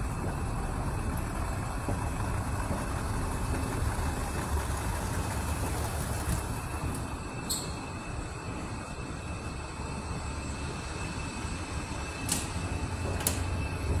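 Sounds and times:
ventilation rumble and hum: 0:00.0 - 0:14.0
faint high whine: 0:05.0 - 0:14.0.

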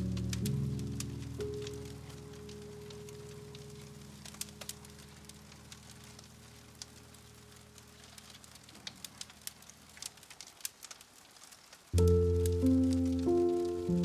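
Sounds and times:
music track: 0:00.0 - 0:08.5, 0:12.0 - 0:14.0
fire crackling and popping: 0:00.0 - 0:14.0
soft hiss: 0:00.0 - 0:14.0.

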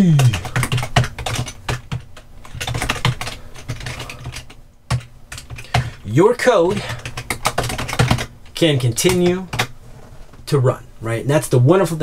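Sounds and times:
typing on computer keyboard: 0:00.1 - 0:06.0, 0:06.6 - 0:09.7.

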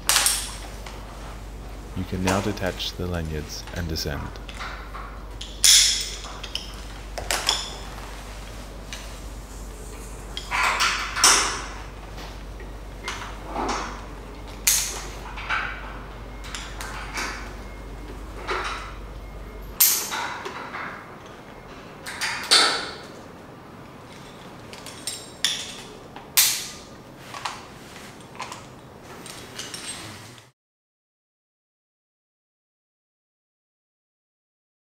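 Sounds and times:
rope and harness rustling: 0:27.2 - 0:30.5.

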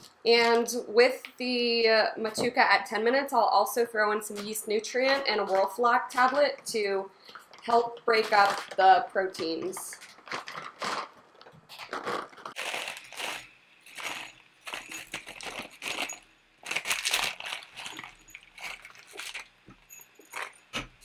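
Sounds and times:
foil bag crinkling: 0:07.3 - 0:21.0
pellets rattling against glass: 0:11.8 - 0:21.0.

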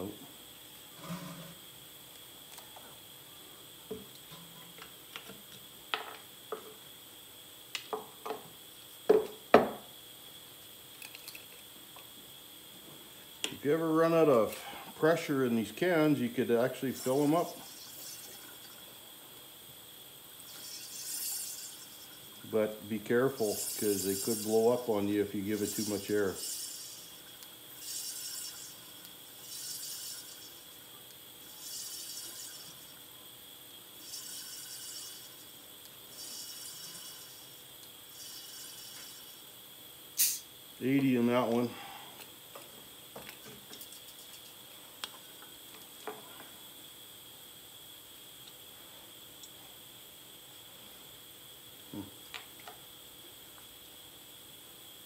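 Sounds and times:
compressed air hissing: 0:23.3 - 0:27.2, 0:40.2 - 0:40.5.

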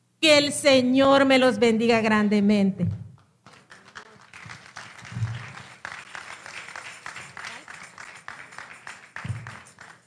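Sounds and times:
audience applause: 0:03.4 - 0:10.0.

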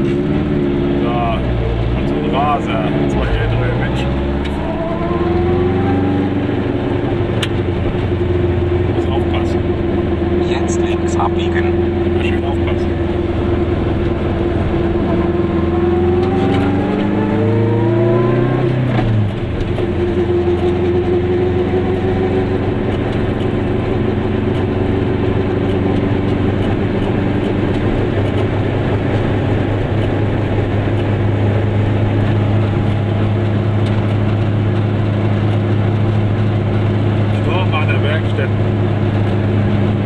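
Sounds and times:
two-stroke car engine revving: 0:00.0 - 0:40.0.

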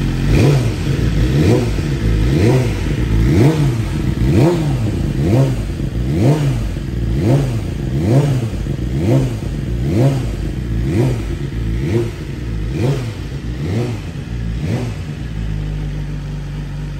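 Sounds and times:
motorcycle engine idling: 0:00.0 - 0:16.9
motorcycle engine throttle blips: 0:00.0 - 0:16.9.

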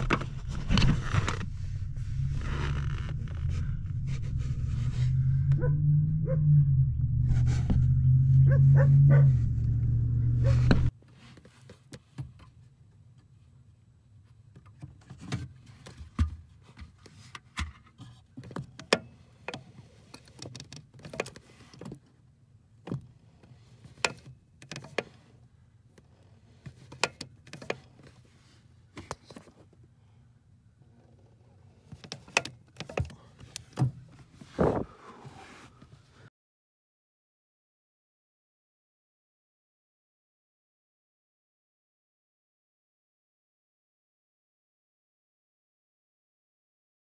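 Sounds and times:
loud low hum: 0:00.0 - 0:10.9.

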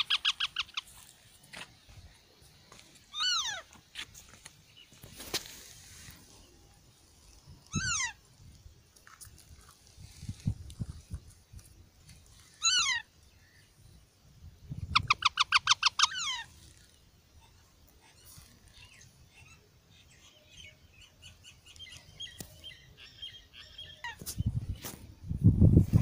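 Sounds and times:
parakeet screeching calls: 0:00.0 - 0:00.8, 0:03.1 - 0:03.7, 0:07.7 - 0:08.2, 0:12.6 - 0:13.1, 0:15.0 - 0:16.5
soft bird chatter: 0:00.0 - 0:25.3.

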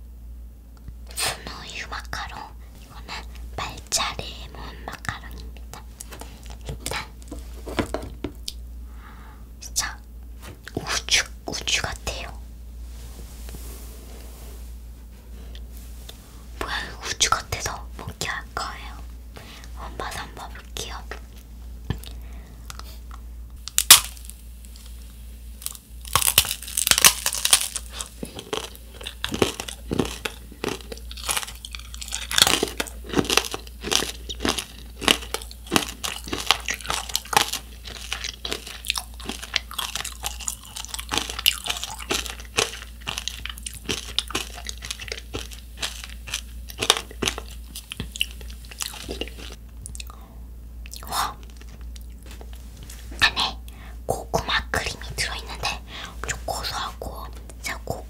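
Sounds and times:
crunching and chewing candy: 0:19.7 - 0:50.2, 0:50.8 - 0:52.6.

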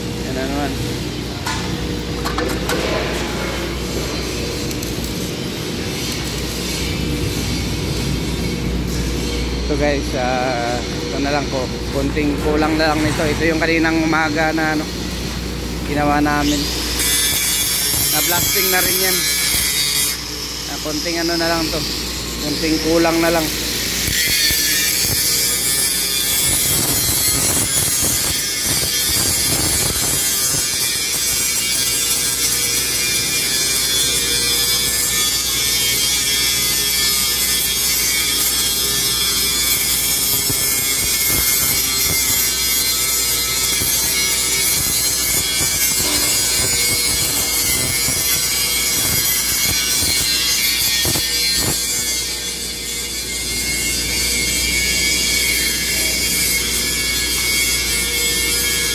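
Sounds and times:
angle grinder grinding steel: 0:15.9 - 0:58.9.

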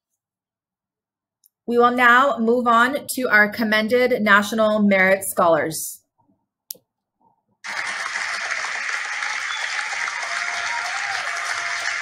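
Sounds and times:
applause: 0:07.6 - 0:12.0.

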